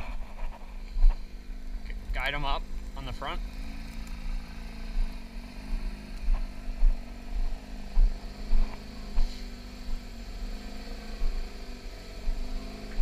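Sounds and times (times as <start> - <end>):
car engine running at low revs: 0.0 - 13.0
irregular low thumps: 5.8 - 10.1.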